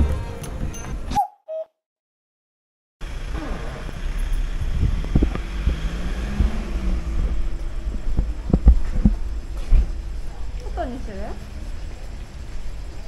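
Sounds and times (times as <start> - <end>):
wind rumbling on microphone: 3.2 - 13.0.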